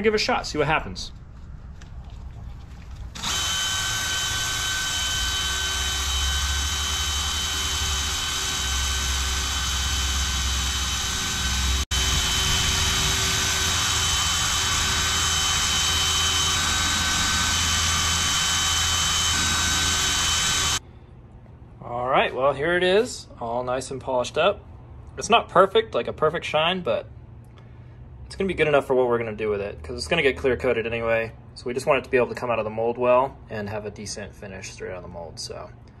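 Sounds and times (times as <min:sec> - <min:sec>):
cordless drill spinning: 0:03.1 - 0:20.8.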